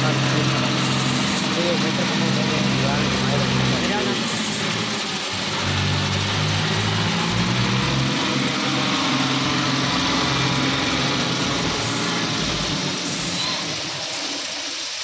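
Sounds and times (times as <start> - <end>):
tractor diesel engine running: 0.0 - 15.0.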